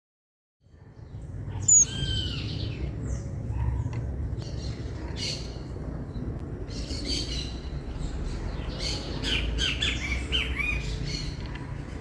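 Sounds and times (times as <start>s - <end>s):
loud sharp bird call: 1.6s - 2.7s
thin high bird calls: 1.6s - 2.7s.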